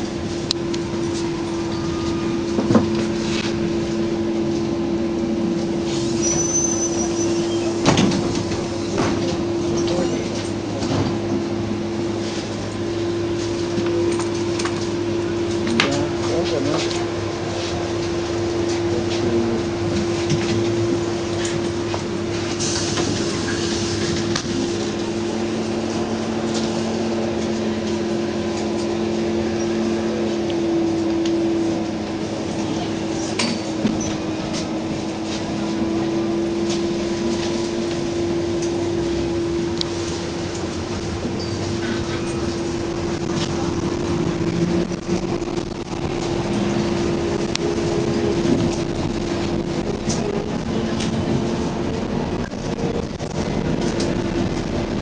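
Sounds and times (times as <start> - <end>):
ride rumble: 0.0 - 55.0
road noise: 0.0 - 55.0
trolleybus electric hum: 0.0 - 55.0
lower hum: 34.4 - 55.0.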